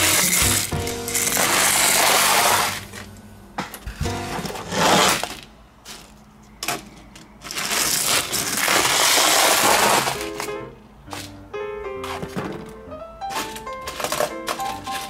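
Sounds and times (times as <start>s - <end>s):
toy scraping down wooden slide: 0.0s - 2.9s, 4.4s - 5.4s, 7.6s - 10.2s.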